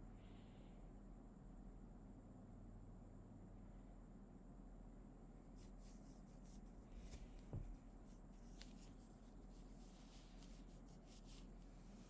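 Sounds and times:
faint room hum: 0.0 - 12.0
soft rustles: 5.4 - 12.0
soft low thump: 7.4 - 7.8.

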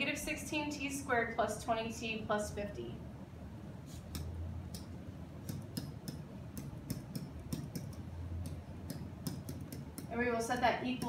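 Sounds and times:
low steady hum: 0.0 - 11.0
pen tapping on whiteboard: 4.2 - 10.1.

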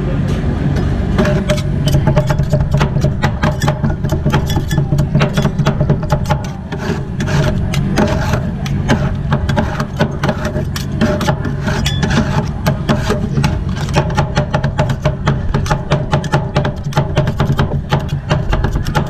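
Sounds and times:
spatulas scraping: 1.2 - 19.0.

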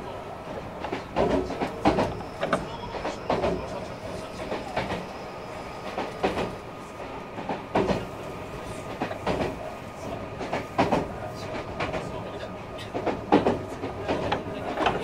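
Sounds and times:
train rumble: 0.0 - 15.0
wheel clacks over rail joints: 0.8 - 3.8, 12.8 - 15.0.

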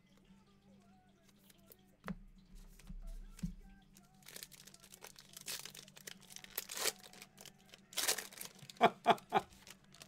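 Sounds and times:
foil wrapper tearing and crinkling: 4.0 - 10.0.

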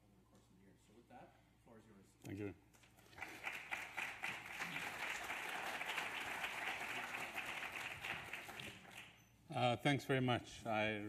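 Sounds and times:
audience applauding: 3.0 - 9.2.

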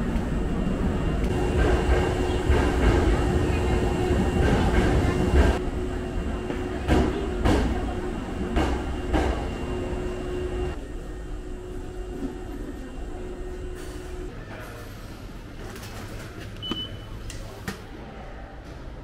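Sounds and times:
electric train humming: 0.0 - 14.4.

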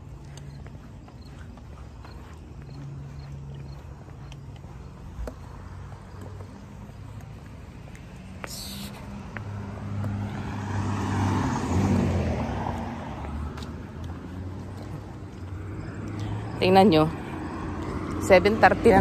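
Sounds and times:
car driving past: 8.2 - 19.0.

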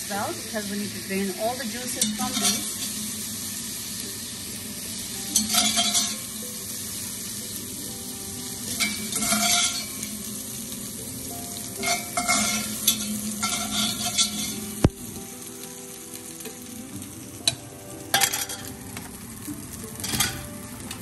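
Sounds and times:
oil sizzling in a pan: 0.0 - 21.0
skimmer scraping and clattering: 11.8 - 14.7.

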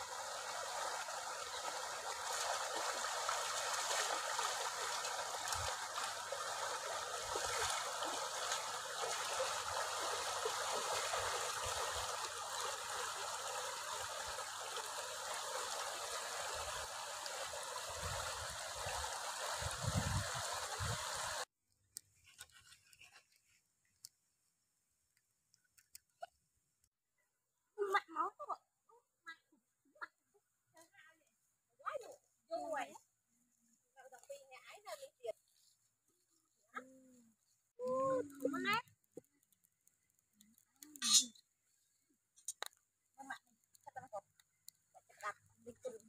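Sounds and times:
stream running over rocks: 0.0 - 21.5
faint ticks: 37.8 - 41.5.

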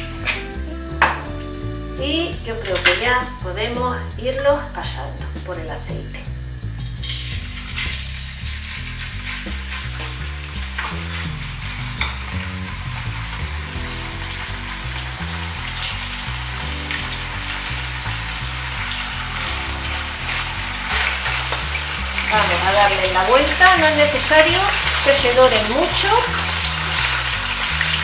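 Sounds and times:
meat sizzling in frying pan: 0.0 - 2.9, 6.4 - 28.0
metal tongs clicking on pan: 2.6 - 3.1.

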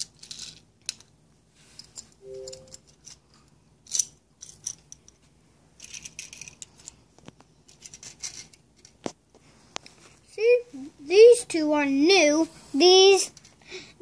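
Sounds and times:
toy cars clicking on concrete: 0.0 - 1.1, 3.8 - 5.1, 5.8 - 7.0, 7.7 - 9.0.

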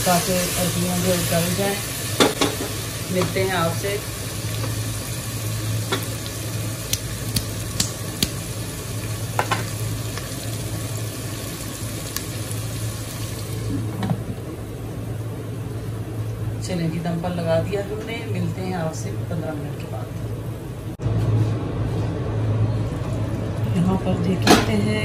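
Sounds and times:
food sizzling in a pot: 0.0 - 16.2.

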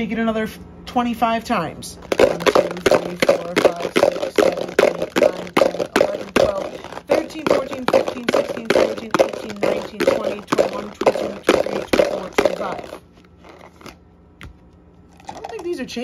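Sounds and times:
dice rattling in plastic container: 2.0 - 13.6, 15.2 - 15.8.

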